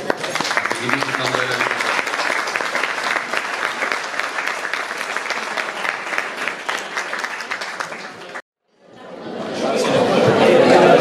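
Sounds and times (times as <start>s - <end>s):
audience applauding: 0.0s - 8.4s.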